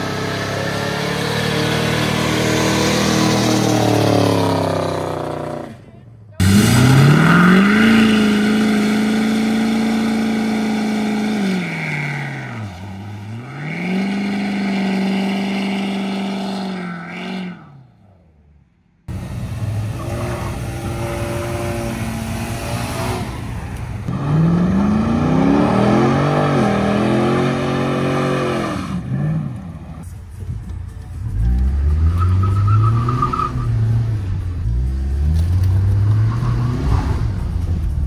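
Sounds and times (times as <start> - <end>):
deep engine revs rising and falling: 0.0 - 5.7, 6.4 - 17.8, 24.1 - 29.7, 31.4 - 38.0
car engine revving: 0.0 - 17.9, 19.1 - 38.0.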